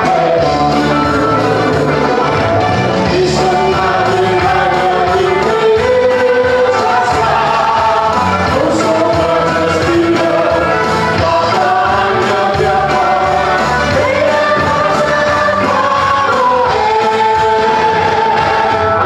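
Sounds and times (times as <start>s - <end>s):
amplified instrumental accompaniment: 0.0s - 19.0s
congregation singing a hymn: 0.0s - 19.0s.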